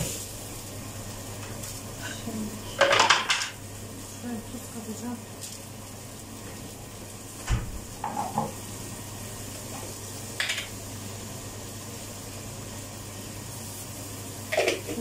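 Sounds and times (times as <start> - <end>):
kitchen hiss and hum: 0.0 - 15.0.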